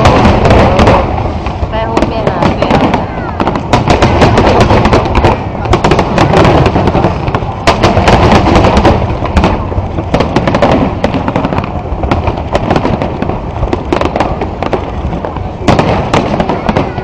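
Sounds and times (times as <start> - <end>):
firework bangs and crackles: 0.0 - 17.0.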